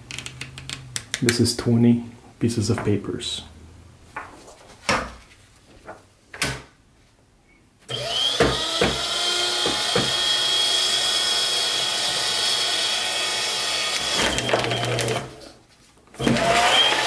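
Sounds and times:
paper shredder motor whining: 7.9 - 15.4, 16.2 - 17.0
paper knocking in shredder: 14.0 - 15.3, 16.2 - 17.0.

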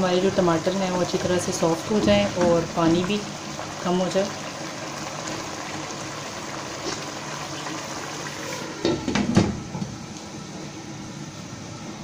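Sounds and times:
curry sizzling and simmering: 0.0 - 9.1.

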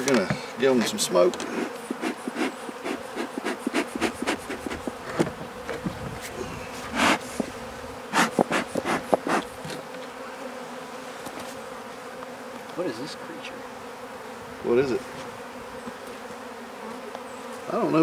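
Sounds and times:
bee flying past: 0.0 - 18.0
bees buzzing: 0.0 - 18.0
sharp bursts of noise: 1.5 - 5.2, 6.9 - 7.4, 8.1 - 9.6.

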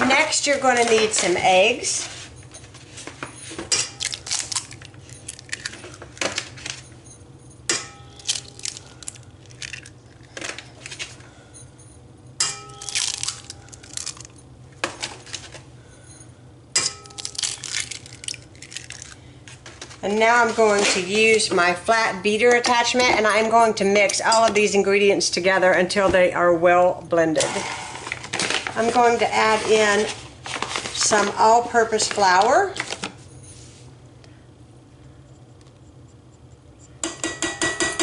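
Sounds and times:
metal bowl ringing: 7.7 - 8.4, 12.4 - 13.2.

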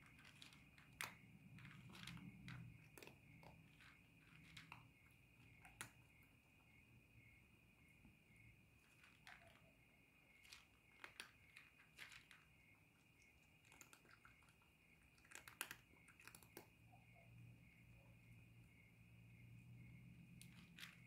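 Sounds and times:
cat crunching dry kibble: 0.0 - 6.0, 8.8 - 9.6, 10.4 - 16.7, 20.4 - 21.0.

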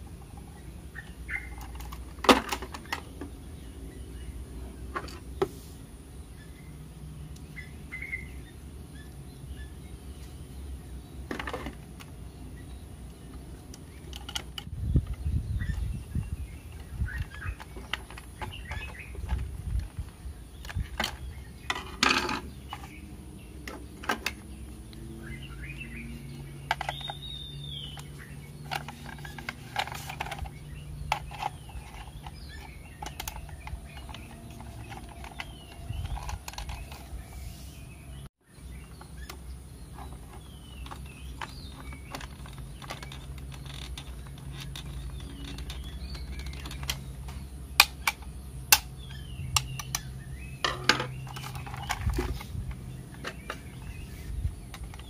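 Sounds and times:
small birds chirping: 0.0 - 55.0
screwdriver and plastic parts clicking: 13.7 - 14.7, 28.0 - 37.2, 40.8 - 47.2.

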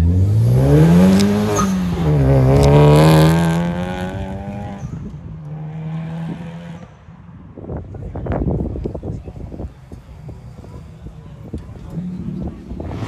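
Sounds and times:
car engine accelerating hard: 0.0 - 7.0.

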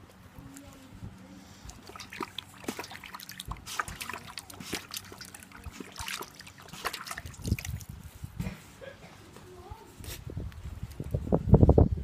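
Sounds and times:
puppy lapping water from bowl: 1.7 - 7.9.

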